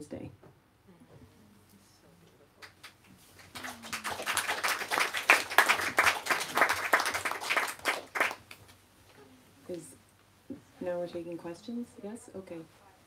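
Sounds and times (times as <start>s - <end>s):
audience applauding: 2.6s - 8.6s.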